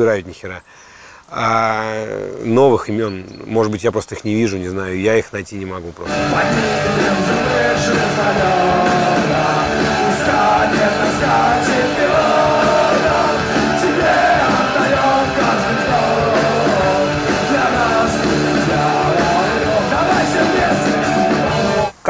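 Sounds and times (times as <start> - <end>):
drums: 6.0 - 22.0
bass guitar: 6.1 - 21.9
electric guitar: 6.1 - 21.9
man singing: 6.1 - 22.0.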